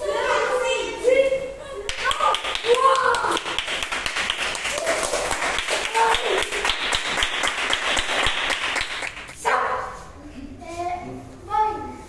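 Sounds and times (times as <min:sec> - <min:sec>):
children clapping: 0:01.9 - 0:09.4
children shouting excitedly: 0:02.0 - 0:03.5.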